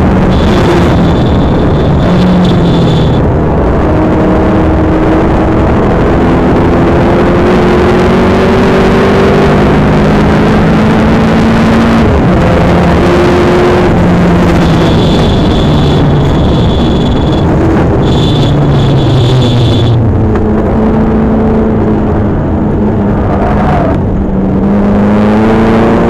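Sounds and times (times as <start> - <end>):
car engine accelerating hard: 0.0 - 26.0
road and wind noise: 0.0 - 26.0
thin high whine: 0.3 - 3.3, 14.5 - 20.0.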